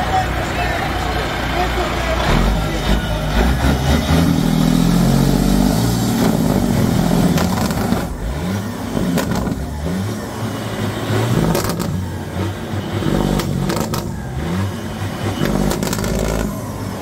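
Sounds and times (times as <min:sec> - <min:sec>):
truck diesel engine revving: 0:00.0 - 0:17.0.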